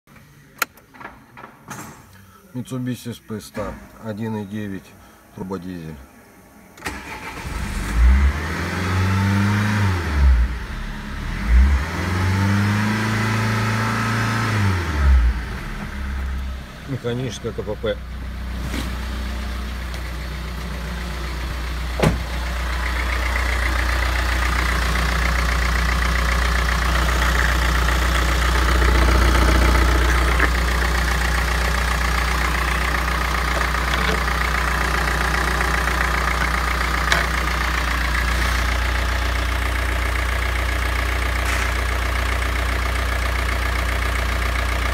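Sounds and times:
diesel engine idling: 6.2 - 8.0, 14.6 - 44.9.

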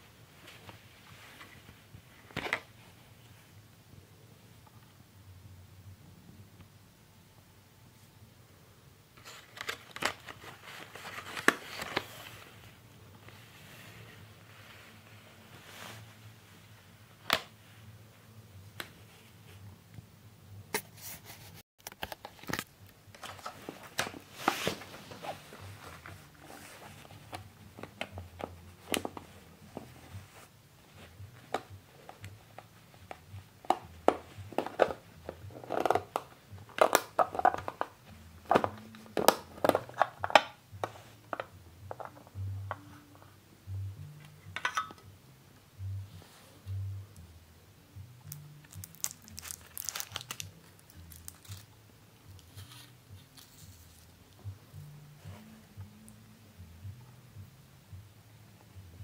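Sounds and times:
plastic cases and bubble wrap handled: 0.2 - 3.3, 9.2 - 16.5, 20.8 - 43.3, 48.6 - 54.6.

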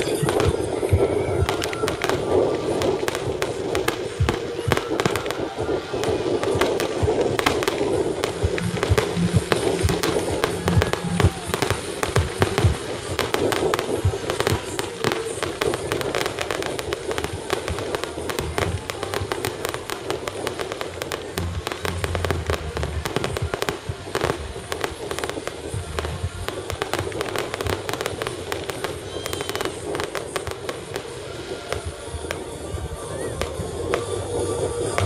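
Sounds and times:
crackling firework sparks: 0.0 - 35.0
fireworks bursting with cracks and pops: 0.0 - 35.0.

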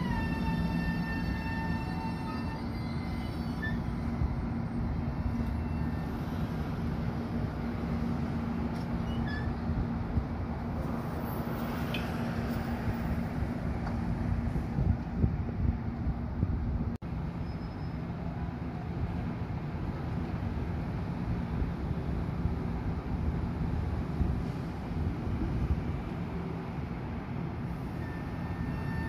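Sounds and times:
high wheel squeaks: 0.0 - 6.4, 8.8 - 9.6, 27.8 - 29.0
train wheels rumbling on rail: 0.0 - 29.0.

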